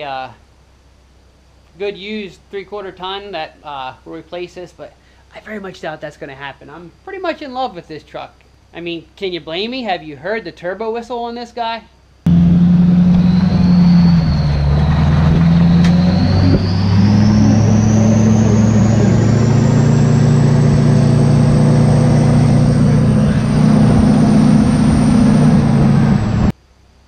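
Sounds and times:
diesel engine drone: 0:12.3 - 0:26.5
turbocharger whistle: 0:12.3 - 0:26.5.

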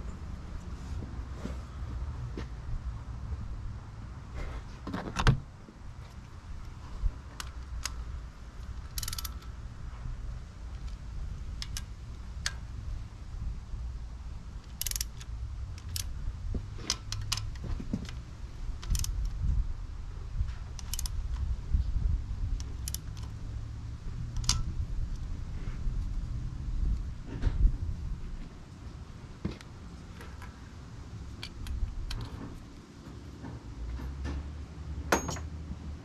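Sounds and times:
low background rumble: 0:00.0 - 0:35.0
ratchet wrench clicking: 0:08.7 - 0:09.5, 0:14.6 - 0:16.1, 0:18.8 - 0:19.3, 0:20.8 - 0:21.2, 0:22.6 - 0:23.3, 0:24.3 - 0:24.7.

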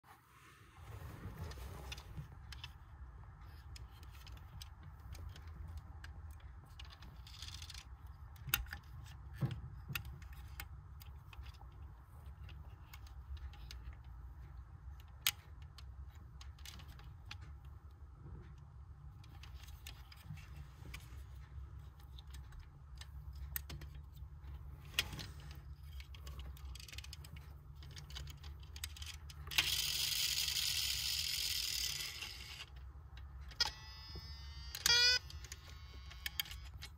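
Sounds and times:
toy car doors clicking: 0:03.6 - 0:11.6, 0:27.8 - 0:32.8, 0:33.4 - 0:36.9.

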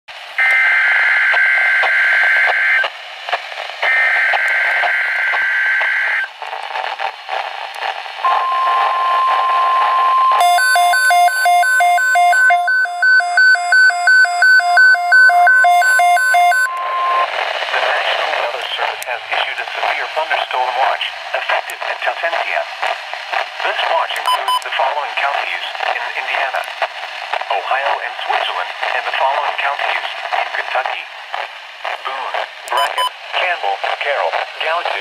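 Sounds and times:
radio static: 0:00.9 - 0:35.0
rapid alarm beeps: 0:08.3 - 0:17.3, 0:32.7 - 0:33.1
steady weather alert tone: 0:08.3 - 0:19.5, 0:32.7 - 0:33.7.

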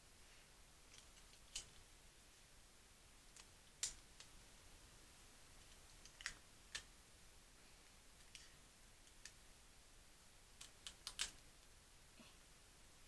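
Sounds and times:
sticky tape clicking and crackling: 0:00.9 - 0:01.8, 0:03.3 - 0:04.3, 0:05.6 - 0:06.9, 0:10.6 - 0:11.5.

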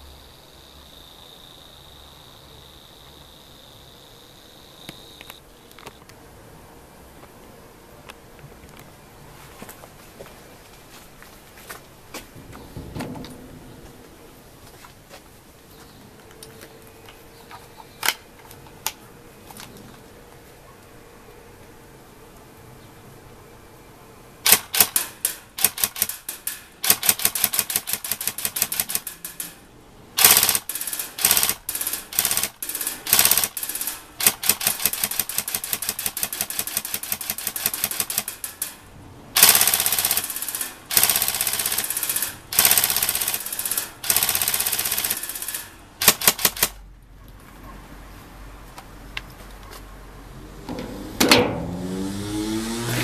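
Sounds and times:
airsoft gun firing: 0:24.5 - 0:29.6, 0:30.2 - 0:38.8, 0:39.4 - 0:46.8.

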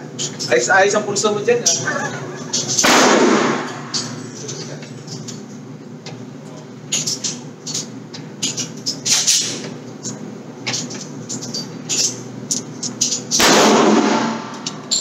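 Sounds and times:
steady low hum: 0:00.0 - 0:15.0
sharp gunshot cracks: 0:02.8 - 0:03.7, 0:13.4 - 0:14.5.

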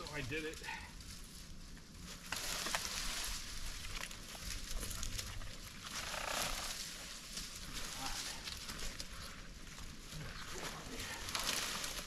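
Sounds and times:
dry leaves crunching underfoot: 0:00.0 - 0:12.0
twigs snapping: 0:02.2 - 0:09.2, 0:10.6 - 0:12.0.

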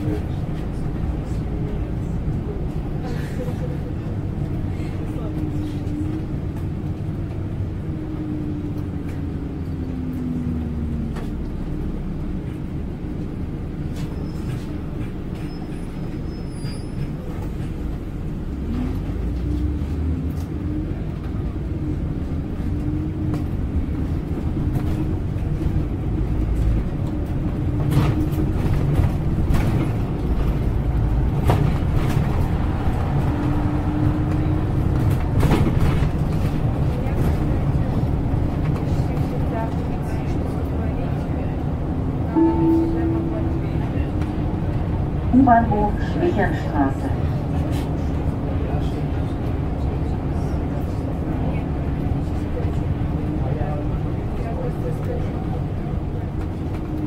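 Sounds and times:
bus engine rumbling: 0:00.0 - 0:57.0
bus body knocks and rattles: 0:22.8 - 0:33.7, 0:34.3 - 0:40.5.

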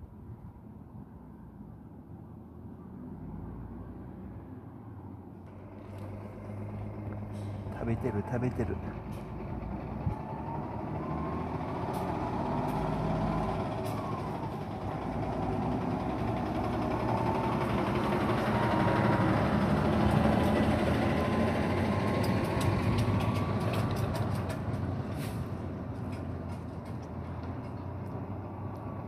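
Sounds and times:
vehicle engine running: 0:05.5 - 0:10.5.

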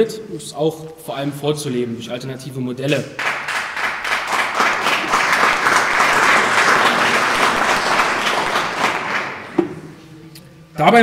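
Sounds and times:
audience applauding: 0:03.2 - 0:09.6.

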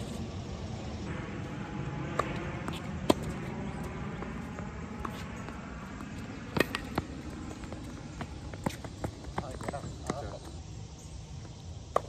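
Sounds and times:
low outdoor background noise: 0:00.0 - 0:12.0
tennis ball struck by rackets: 0:02.1 - 0:03.6, 0:06.4 - 0:07.8.

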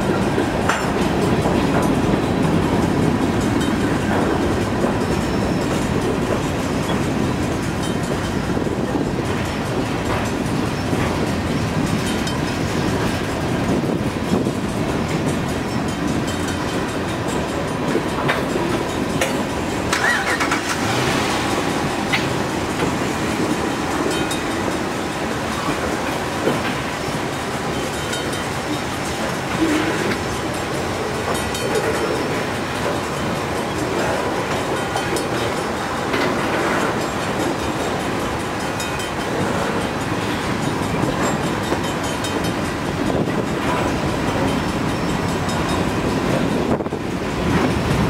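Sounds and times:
train wheels rumbling on rail: 0:00.0 - 0:48.0
wind noise on microphone: 0:00.0 - 0:48.0
freight car clanks: 0:16.1 - 0:24.8
wheel squeal: 0:19.9 - 0:21.0.

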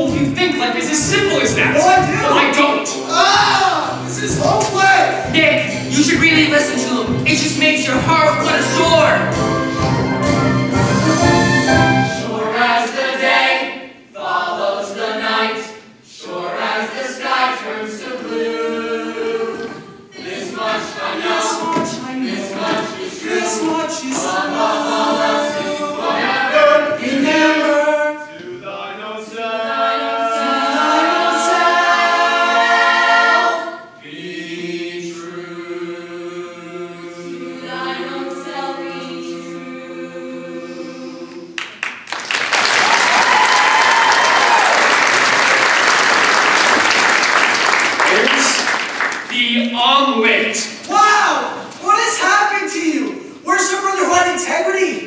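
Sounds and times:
ensemble singing in harmony: 0:01.0 - 0:04.5, 0:05.1 - 0:41.8.

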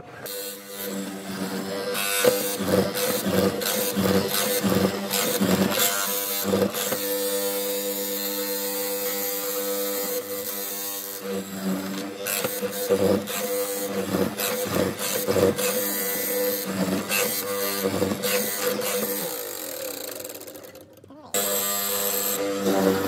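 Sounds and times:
electric motor humming: 0:00.2 - 0:23.0
chisel cutting wood chips: 0:00.3 - 0:23.0.

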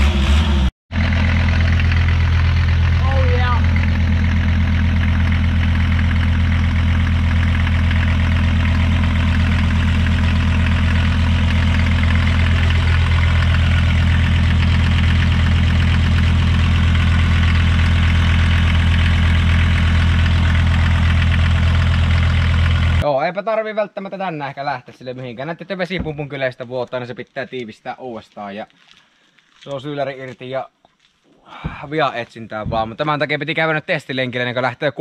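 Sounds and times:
diesel engine idling: 0:00.3 - 0:23.0.

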